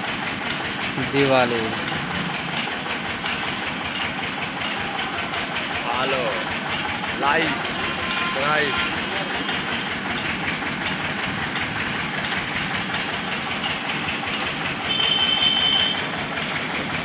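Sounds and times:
engine running: 0.0s - 17.0s.

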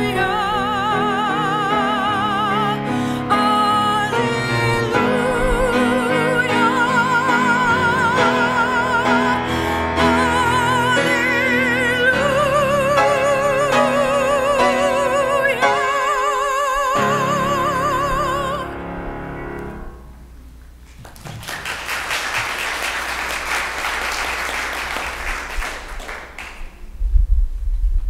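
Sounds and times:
soprano singing with vibrato: 0.0s - 18.8s
piano: 0.0s - 27.1s
applause: 20.9s - 26.8s.

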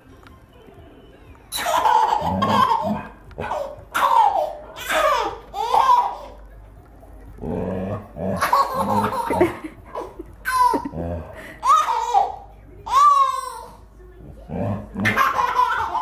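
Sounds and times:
baby laughing: 1.5s - 6.4s, 8.4s - 13.8s, 15.0s - 16.0s.

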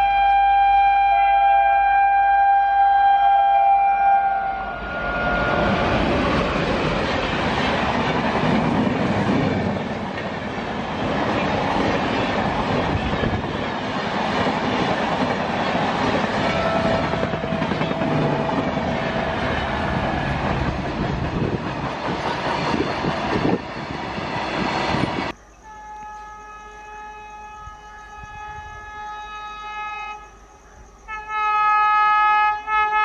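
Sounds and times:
electric locomotive horn: 0.0s - 6.2s, 16.3s - 20.5s, 25.6s - 30.4s, 31.1s - 33.0s
train coaches passing at speed: 3.2s - 30.5s.

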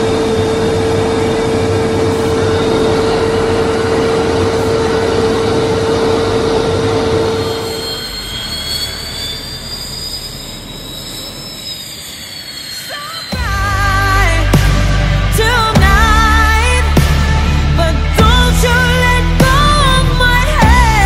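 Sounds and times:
jet engine rush in flight: 0.0s - 15.5s
jet turbine whine on the ground: 0.0s - 21.0s.

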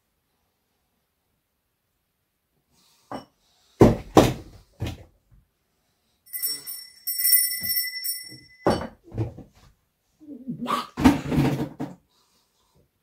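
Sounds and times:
small hand bell ringing: 6.3s - 9.0s.

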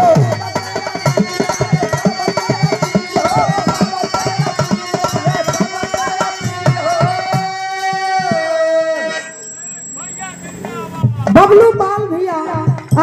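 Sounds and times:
hand drum rhythm: 0.0s - 8.5s, 10.6s - 13.0s
harmonium melody: 0.0s - 13.0s.

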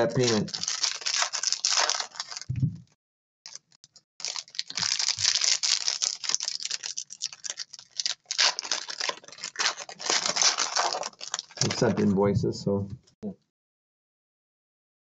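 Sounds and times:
foil wrappers crinkling and tearing: 0.0s - 2.5s, 3.5s - 12.1s
soft thump: 2.5s - 2.8s.

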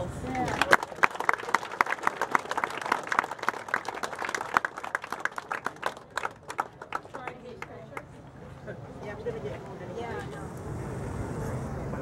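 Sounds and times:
crowd clapping: 0.4s - 8.1s.

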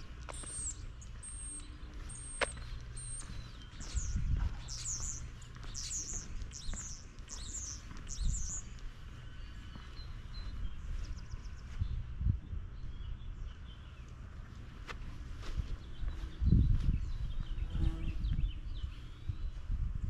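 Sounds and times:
small songbird chirping: 0.0s - 14.3s, 15.6s - 19.7s
dull low thumps: 1.2s - 7.0s.

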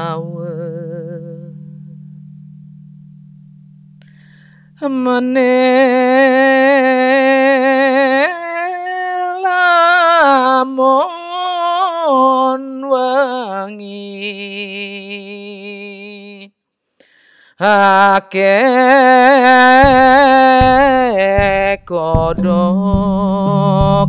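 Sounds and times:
person chanting with vibrato: 0.0s - 2.0s.

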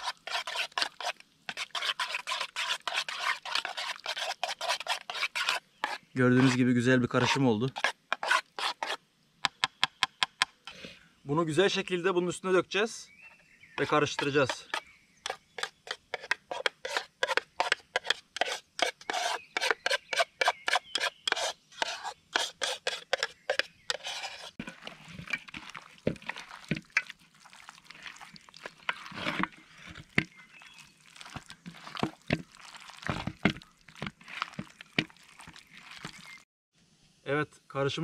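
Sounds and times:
hands squelching marinade: 0.0s - 6.6s, 24.2s - 36.4s
spoon scraping plastic tub: 0.0s - 9.0s, 13.8s - 36.4s.

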